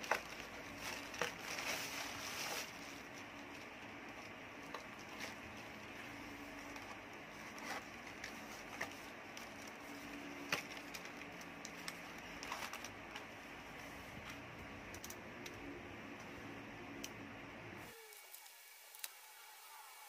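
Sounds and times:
sharp clicks and crackles: 0:14.2 - 0:15.6.

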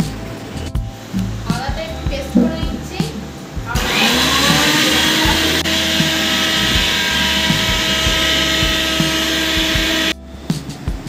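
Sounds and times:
mixer grinder motor whirring: 0:03.7 - 0:10.2.

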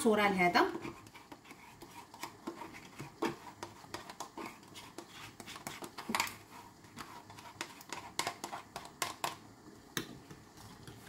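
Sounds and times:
spoon scraping plastic pot: 0:00.6 - 0:09.4.

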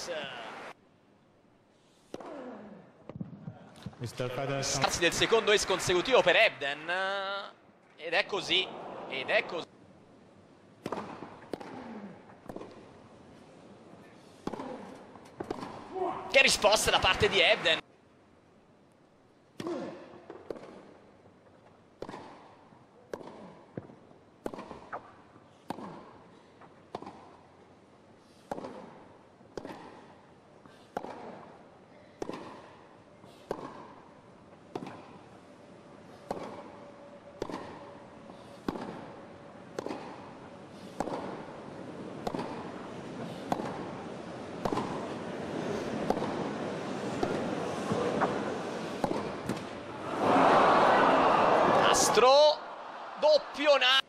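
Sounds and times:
crowd noise: 0:00.0 - 0:00.8, 0:03.5 - 0:06.9, 0:08.0 - 0:09.7, 0:35.4 - 0:54.0
tennis ball hit by racquets: 0:02.0 - 0:03.3, 0:10.8 - 0:13.0, 0:14.3 - 0:17.4, 0:19.6 - 0:21.0, 0:22.0 - 0:27.6, 0:28.2 - 0:35.4, 0:36.0 - 0:50.3.

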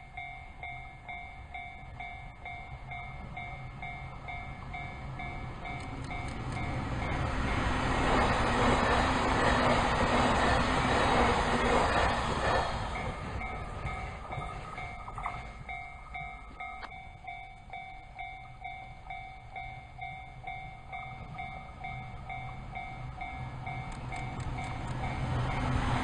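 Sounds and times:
approaching train rumble: 0:00.0 - 0:26.0
electric train passing: 0:00.0 - 0:26.0
level crossing bell ringing: 0:13.0 - 0:25.3.

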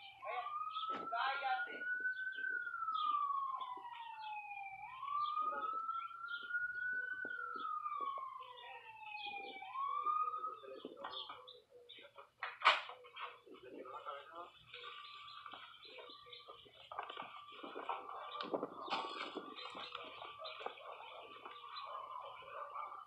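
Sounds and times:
emergency vehicle siren wailing: 0:00.0 - 0:23.0.

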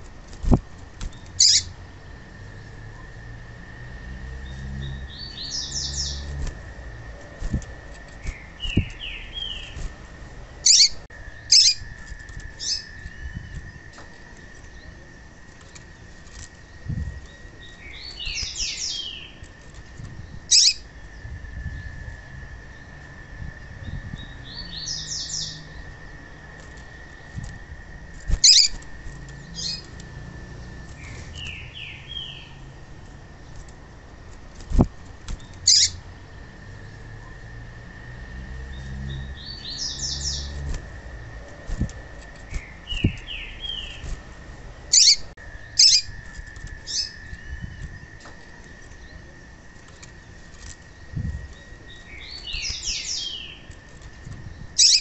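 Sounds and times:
wing flutters: 0:00.0 - 0:01.9, 0:04.6 - 0:22.2, 0:25.7 - 0:36.2, 0:38.8 - 0:55.0
bird chirps: 0:01.1 - 0:01.8, 0:04.4 - 0:06.4, 0:07.2 - 0:09.8, 0:10.6 - 0:15.9, 0:16.6 - 0:19.5, 0:20.2 - 0:22.0, 0:28.3 - 0:32.7, 0:35.4 - 0:36.0, 0:38.7 - 0:40.7, 0:41.6 - 0:44.1, 0:44.9 - 0:53.8, 0:54.5 - 0:55.0.

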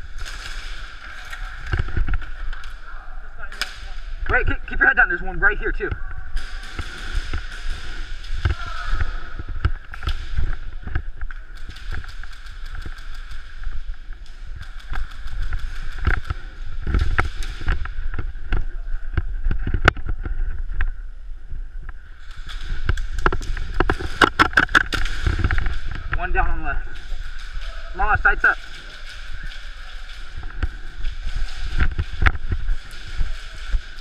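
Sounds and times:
airsoft guns firing: 0:06.3 - 0:10.5.

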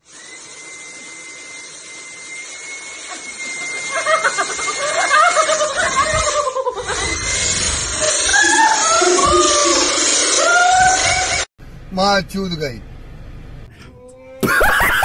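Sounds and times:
vacuum cleaner whine and hiss: 0:00.0 - 0:06.1
woman laughing and shrieking: 0:03.0 - 0:11.5, 0:14.4 - 0:15.0.

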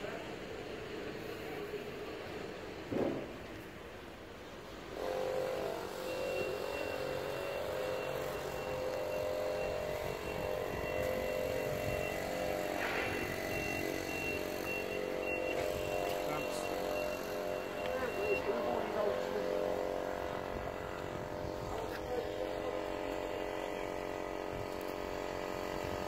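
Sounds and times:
car engine idling: 0:08.7 - 0:25.8.

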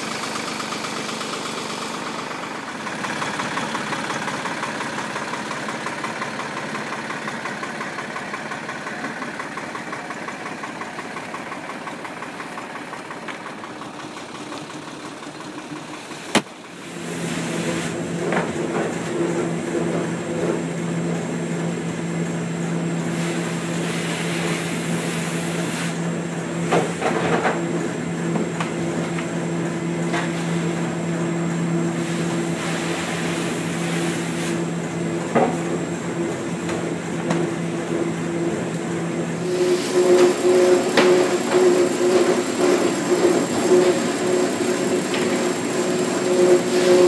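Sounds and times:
motor hum: 0:34.8 - 0:47.0.

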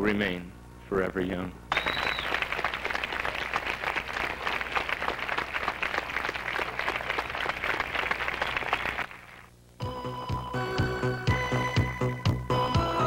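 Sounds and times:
crowd applauding: 0:01.7 - 0:09.5.

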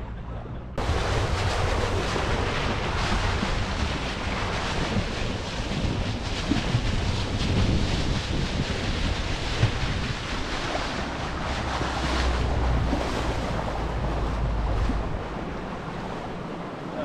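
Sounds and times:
motorboat engine rumble: 0:00.0 - 0:17.0
sea water rushing and slapping: 0:00.0 - 0:17.0
wind buffeting microphone: 0:00.0 - 0:17.0.

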